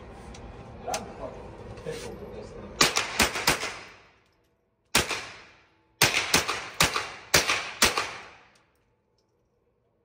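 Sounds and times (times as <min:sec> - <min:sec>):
gunshots echoing indoors: 0:02.8 - 0:04.2, 0:04.9 - 0:08.8.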